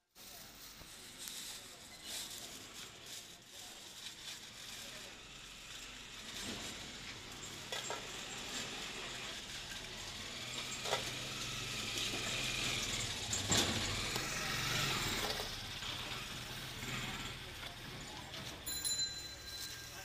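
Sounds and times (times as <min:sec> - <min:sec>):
plastic bag crinkling: 0:00.0 - 0:08.0
low street hum: 0:00.0 - 0:20.0.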